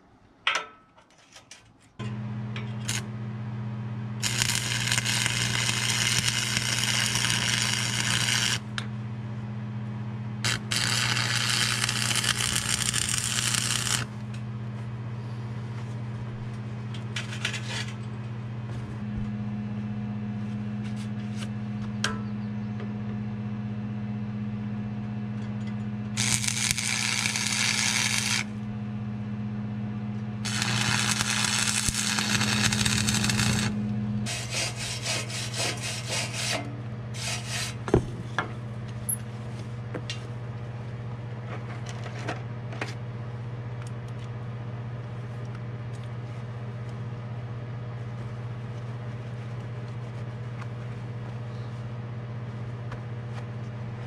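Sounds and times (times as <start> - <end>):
steady low hum: 1.7 - 54.0
welding arc crackling and hissing: 2.8 - 3.1, 4.2 - 8.8, 10.4 - 14.2, 26.2 - 28.6, 30.4 - 35.0.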